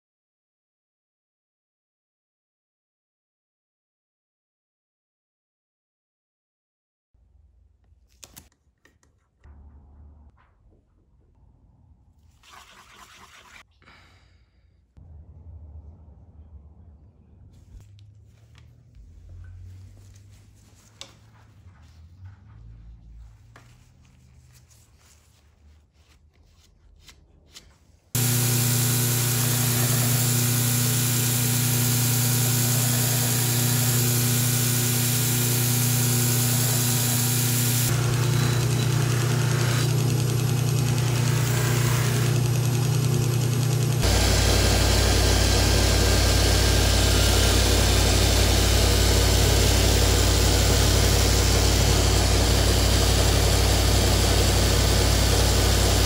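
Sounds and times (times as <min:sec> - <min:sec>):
belt grinder running: 0:28.2 - 0:56.0
bench buffer motor humming: 0:28.2 - 0:56.0.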